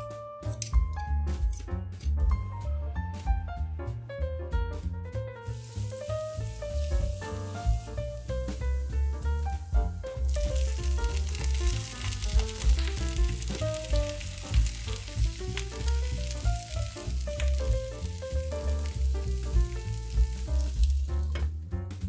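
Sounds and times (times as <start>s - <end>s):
food sizzling in a pan: 5.4s - 21.4s.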